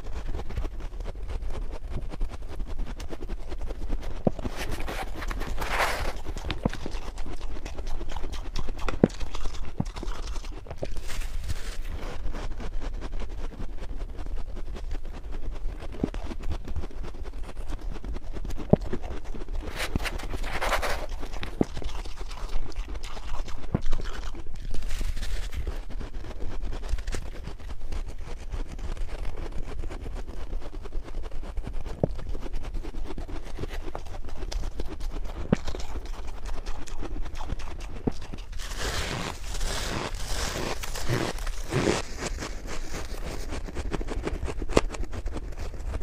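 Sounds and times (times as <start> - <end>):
frost being chewed: 0.0 - 46.0
low steady hum: 0.0 - 46.0
scraping rush: 4.3 - 6.8.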